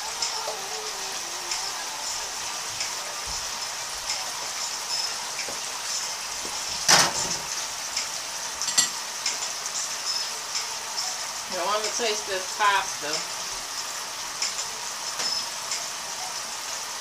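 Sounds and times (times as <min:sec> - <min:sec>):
sauce sizzling in a frying pan: 0:00.0 - 0:17.0.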